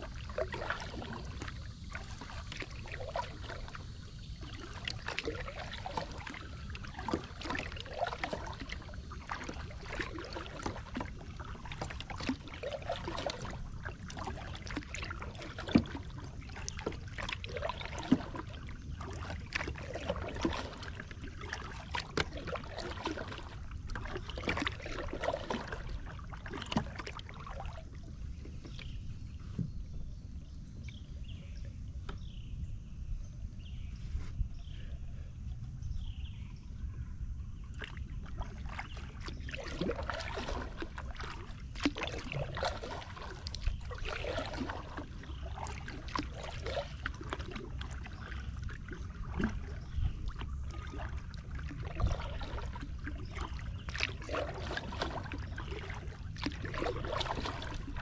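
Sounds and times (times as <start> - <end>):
water trickling off paddle: 0.0 - 30.0, 37.6 - 58.0
paddle splashing in water: 0.0 - 32.3, 37.6 - 58.0.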